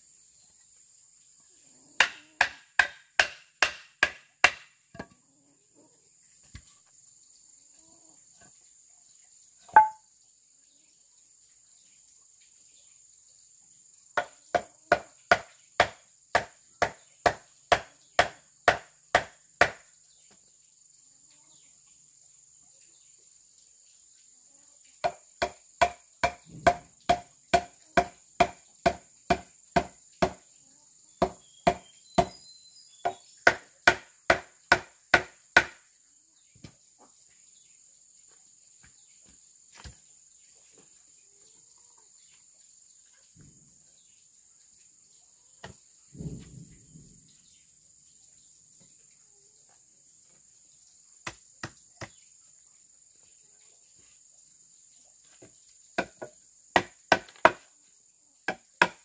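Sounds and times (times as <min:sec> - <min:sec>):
insects trilling: 0:00.0 - 0:59.0
hand tool striking wood: 0:02.0 - 0:05.2, 0:09.7 - 0:10.0, 0:14.2 - 0:19.9, 0:25.0 - 0:30.4, 0:31.2 - 0:32.4, 0:33.0 - 0:35.8, 0:51.2 - 0:52.2, 0:55.4 - 0:57.7, 0:58.5 - 0:59.0
low dull thud: 0:46.1 - 0:47.3.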